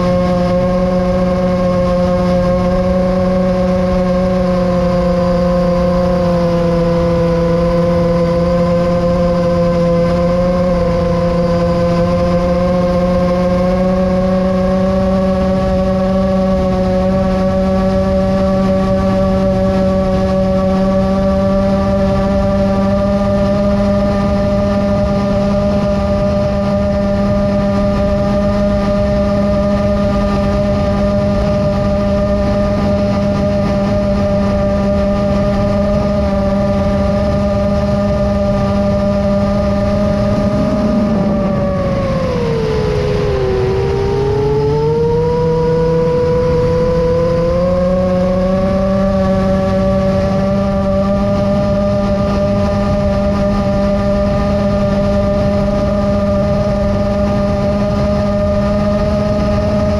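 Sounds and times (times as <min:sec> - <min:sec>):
drone motors whining: 0:23.0 - 0:59.9
wind rush: 0:24.1 - 0:48.5.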